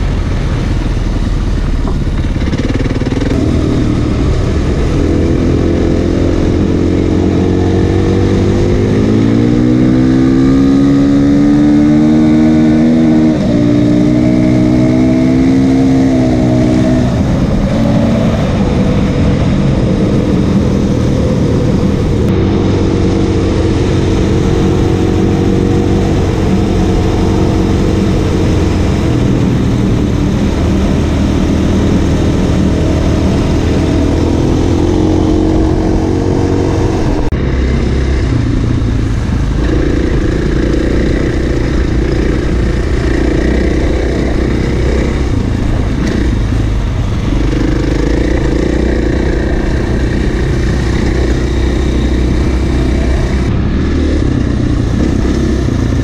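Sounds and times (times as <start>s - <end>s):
motorcycle engine revving: 0.0s - 56.0s
steady rushing noise: 0.0s - 56.0s.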